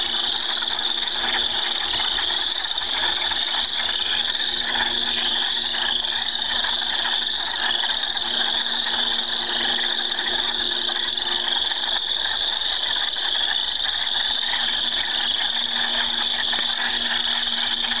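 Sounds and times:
frogs trilling: 0:00.0 - 0:18.0
faint low hum: 0:14.5 - 0:18.0.

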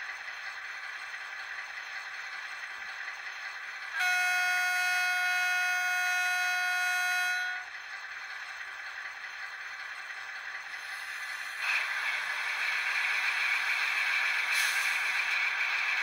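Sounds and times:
model train horn from small speaker: 0:03.9 - 0:07.7.

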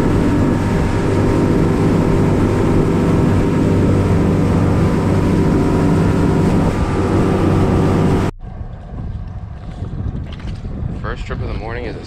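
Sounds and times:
outboard motor running: 0:00.0 - 0:08.3
water rushing past hull: 0:00.0 - 0:08.3
wind buffeting microphone: 0:00.0 - 0:12.0.

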